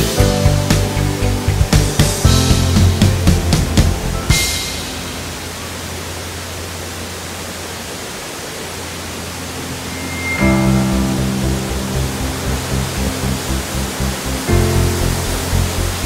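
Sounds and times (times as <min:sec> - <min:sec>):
background music with beat: 0:00.0 - 0:05.4
waterfall rushing: 0:00.0 - 0:16.0.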